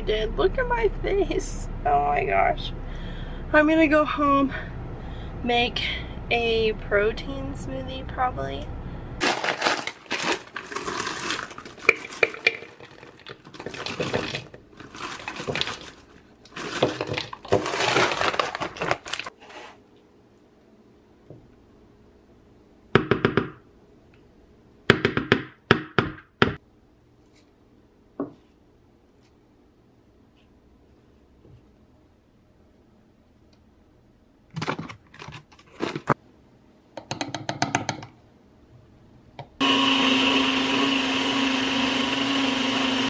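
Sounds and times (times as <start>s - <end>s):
frozen berries clattering into blender cup: 9.2s - 19.3s
plastic bag crinkling: 9.2s - 19.4s.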